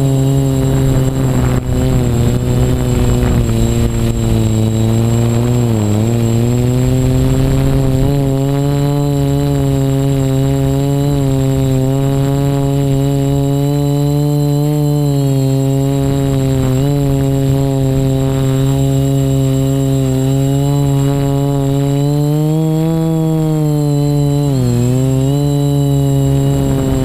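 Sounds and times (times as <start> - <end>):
drone propellers humming: 0.0 - 27.0.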